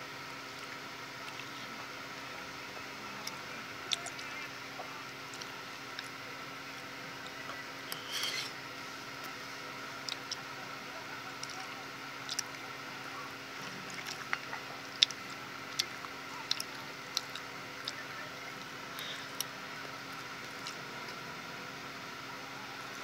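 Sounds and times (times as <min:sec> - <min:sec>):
steady low hum: 0:00.0 - 0:23.0
fork scraping against a plate: 0:07.8 - 0:08.6.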